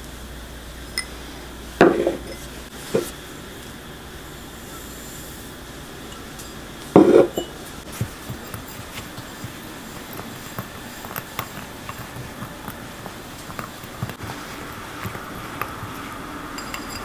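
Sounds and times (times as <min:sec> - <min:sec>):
metal utensil clinking glass bowl: 0:06.1 - 0:07.6, 0:15.0 - 0:17.0.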